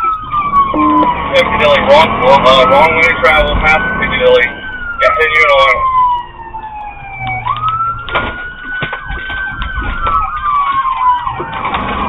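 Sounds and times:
fast-warbling siren: 0:00.0 - 0:11.8
police siren wailing: 0:00.0 - 0:12.0.

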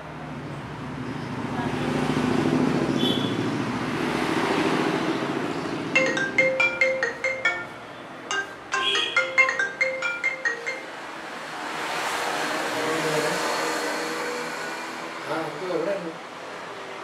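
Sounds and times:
marimba-like tune: 0:06.0 - 0:11.1.

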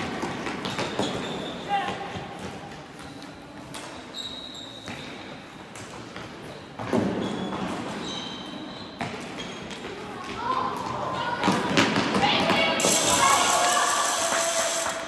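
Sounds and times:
shoes squeaking on court floor: 0:00.0 - 0:12.0
players' voices: 0:09.9 - 0:15.0.

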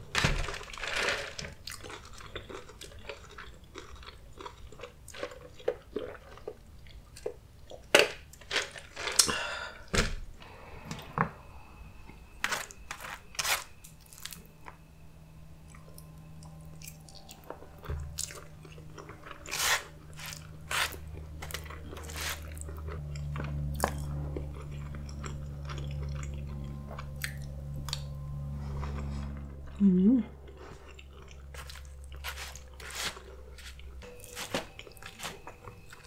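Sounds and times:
chewing and crunching food: 0:00.0 - 0:09.6, 0:15.6 - 0:36.0
steady low hum: 0:00.0 - 0:36.0.

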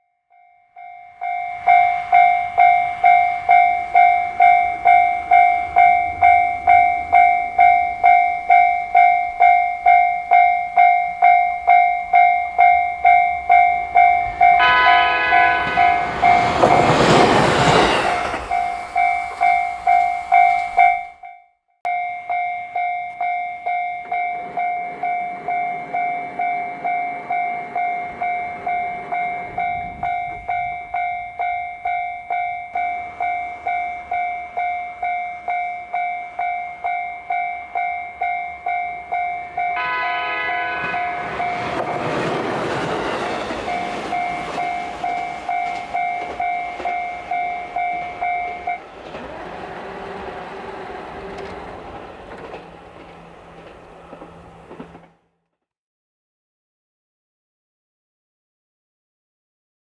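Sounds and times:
level-crossing alarm ringing: 0:00.2 - 0:49.0
railcar engine and wheel noise: 0:00.6 - 0:55.3
train horn: 0:14.6 - 0:17.0, 0:39.8 - 0:42.1.

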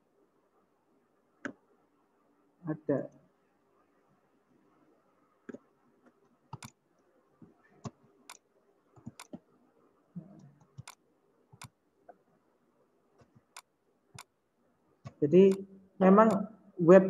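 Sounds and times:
sharp computer clicks: 0:06.5 - 0:06.8, 0:07.8 - 0:08.4, 0:09.0 - 0:09.4, 0:10.6 - 0:11.8, 0:13.2 - 0:14.3, 0:15.1 - 0:16.5.

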